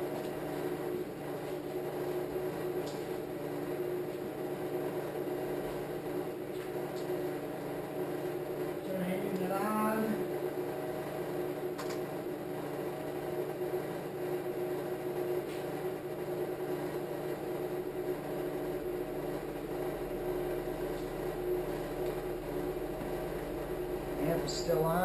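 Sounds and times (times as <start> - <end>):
steady hum with fixed tones: 0.0 - 25.0
deep bass tone from subwoofer: 20.0 - 25.0.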